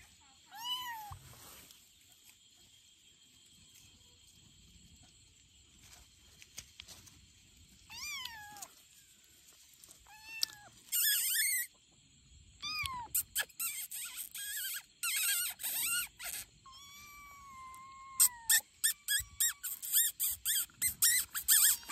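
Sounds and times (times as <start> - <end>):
kittens mewing: 12.6 - 21.9.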